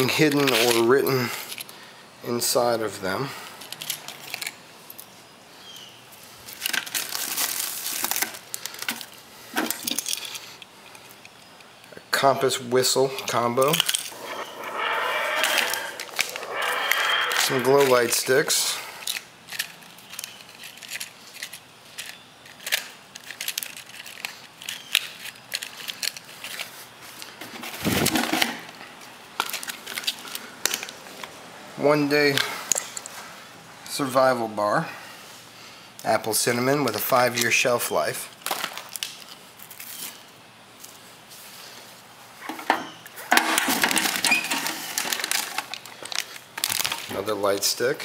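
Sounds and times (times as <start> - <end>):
packaging rustling and clicks: 6.5 - 10.4, 19.0 - 28.4, 43.4 - 47.1
plastic wrappers crinkling: 6.5 - 10.4, 19.0 - 27.3, 29.4 - 31.0, 38.4 - 40.2, 43.6 - 47.4
rustle and clatter in metal box: 42.5 - 47.1.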